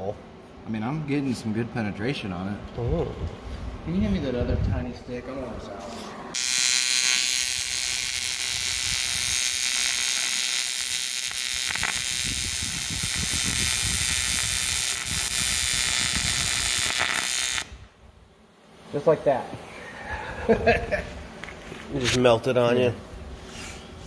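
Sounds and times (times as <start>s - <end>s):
welding arc hissing: 6.3s - 18.0s.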